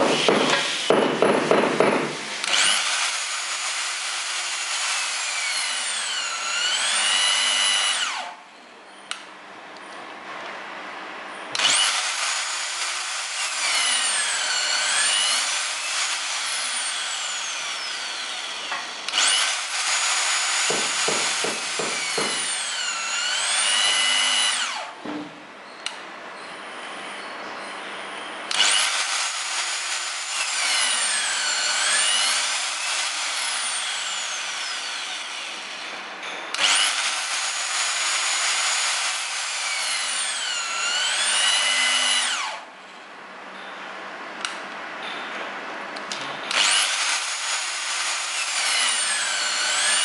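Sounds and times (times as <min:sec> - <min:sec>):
knocks: 0:00.0 - 0:02.2, 0:20.7 - 0:22.5
electric wrench motor whine: 0:00.0 - 0:08.4, 0:11.5 - 0:25.0, 0:28.5 - 0:35.9, 0:36.5 - 0:42.7, 0:46.5 - 0:50.0.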